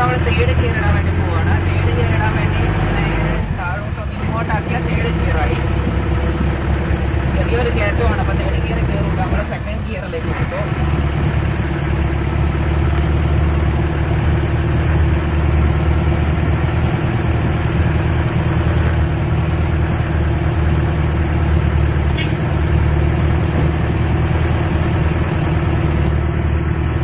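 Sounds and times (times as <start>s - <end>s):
jeep engine running under load: 0.0s - 27.0s.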